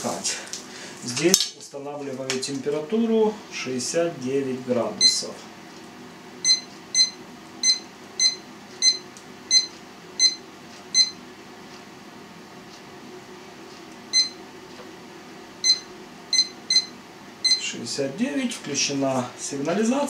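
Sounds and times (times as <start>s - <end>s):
thermometer beeping: 5.0s - 5.2s, 6.4s - 11.2s, 14.1s - 14.4s, 15.6s - 17.7s.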